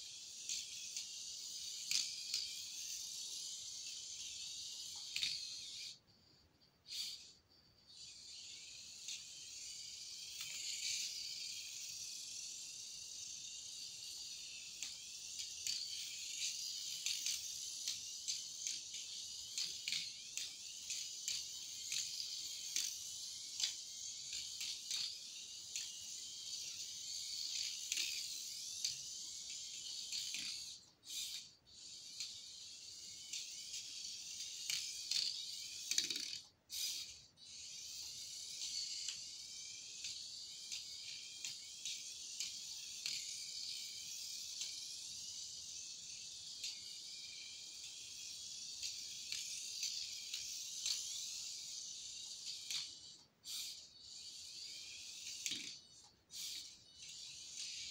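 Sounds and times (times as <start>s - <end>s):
toy car electric motor whining: 0.0s - 57.9s
small clicks: 6.9s - 57.9s.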